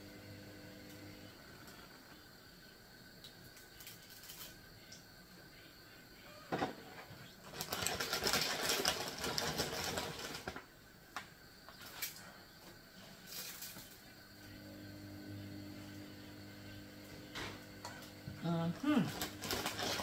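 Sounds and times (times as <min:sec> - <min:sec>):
plastic bag crinkling: 0:07.4 - 0:10.6, 0:18.9 - 0:20.0.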